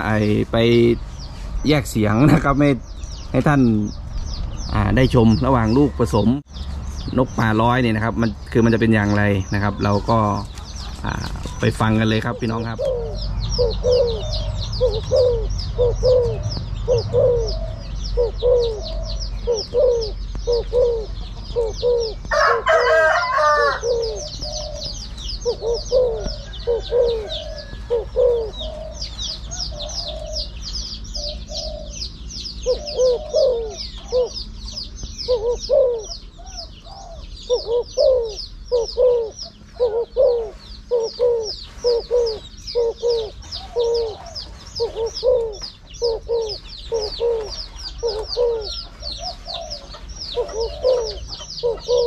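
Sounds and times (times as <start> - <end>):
doves cooing: 0.0 - 52.0
high chirping: 0.0 - 52.0
rooster crowing: 22.2 - 24.4, 25.8 - 28.4.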